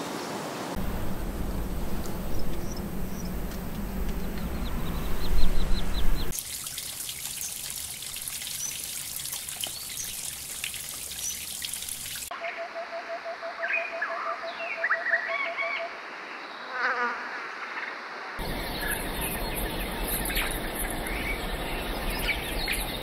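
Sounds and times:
low rumbling background: 0.8s - 6.3s, 18.4s - 23.0s
bird chirps: 2.2s - 3.5s, 4.1s - 6.4s, 18.4s - 23.0s
stream trickling over rocks: 6.3s - 12.3s, 18.4s - 23.0s.

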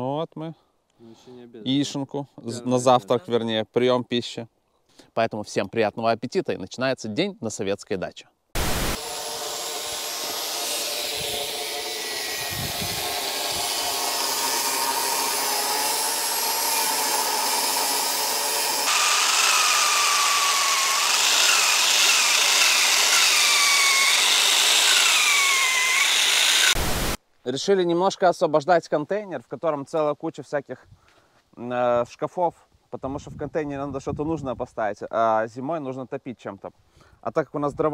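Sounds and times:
power saw cutting wood: 8.6s - 27.2s.

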